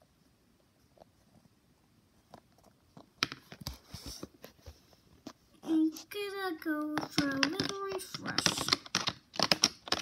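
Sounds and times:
plastic toy taps and knocks: 6.8 - 10.0.

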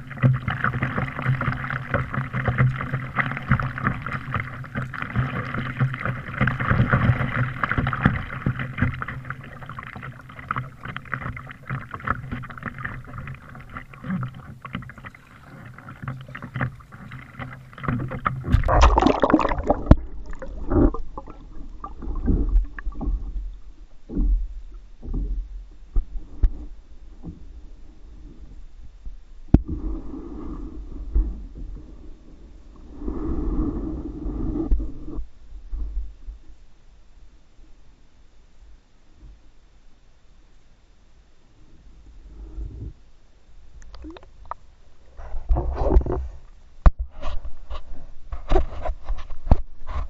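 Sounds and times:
muffled underwater thuds and gurgles: 0.0 - 32.1, 43.8 - 44.6, 45.2 - 50.0
water lapping against kayak: 0.0 - 36.6, 43.7 - 50.0.

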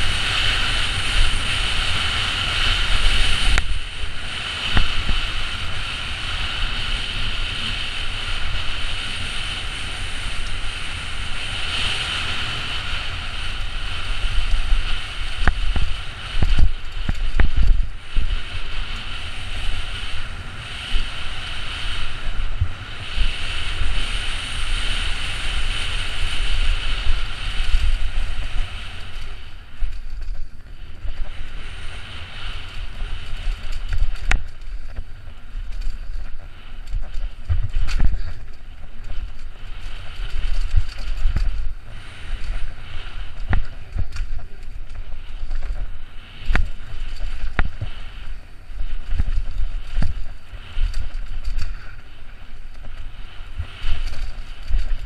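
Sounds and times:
mountain bike rumbling and rattling: 0.0 - 55.0
wind rushing over camera: 0.0 - 55.0.

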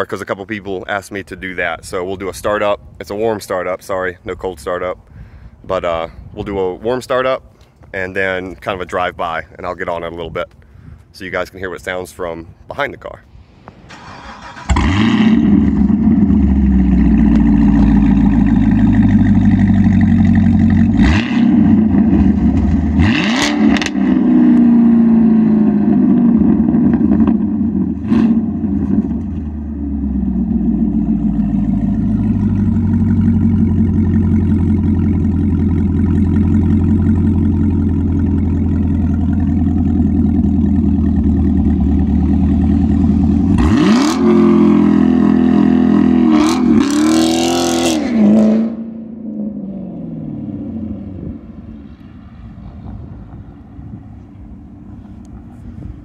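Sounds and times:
car engine idling: 13.7 - 23.1, 28.6 - 46.1
engine revving: 13.7 - 53.6.

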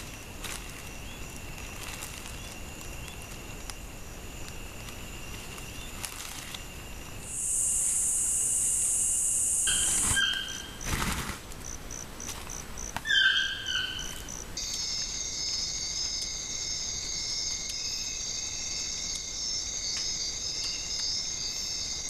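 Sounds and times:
thin steady high whine: 2.4 - 10.8
loud high-pitched insect buzz: 7.2 - 11.3.

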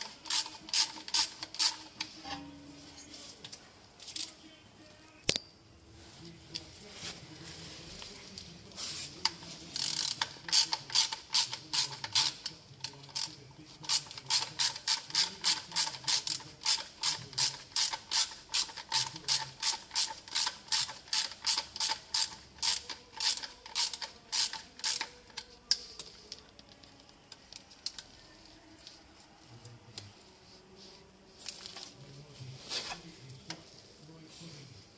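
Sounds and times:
socket ratchet clicking: 13.9 - 25.5.

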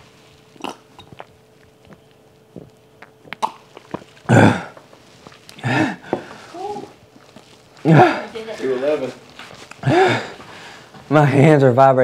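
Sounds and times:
man coughing: 4.3 - 4.8.

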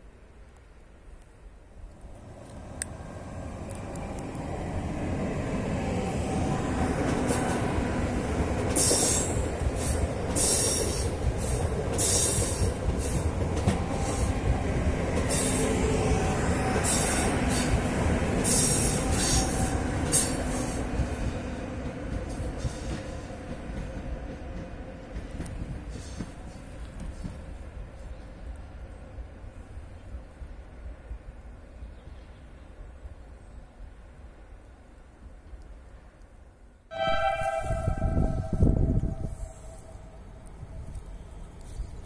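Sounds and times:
train passing at speed: 1.4 - 42.0
hiss and clatter bursts: 8.7 - 14.3, 15.2 - 15.8, 25.7 - 27.4.

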